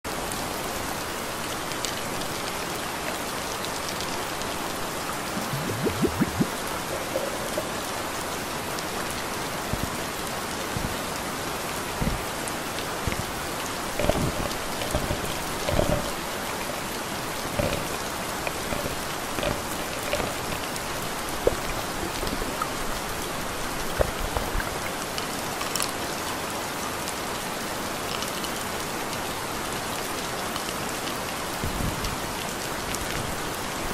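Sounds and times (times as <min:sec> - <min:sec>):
steady rain hiss: 0:00.1 - 0:33.9
raindrops knocking: 0:05.4 - 0:08.2, 0:13.0 - 0:24.8.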